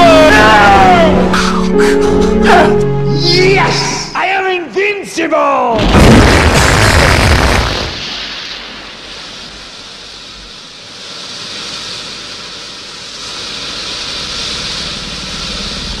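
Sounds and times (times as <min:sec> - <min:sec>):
loud blast: 0:05.8 - 0:16.0
rushing wind-like noise: 0:06.1 - 0:16.0.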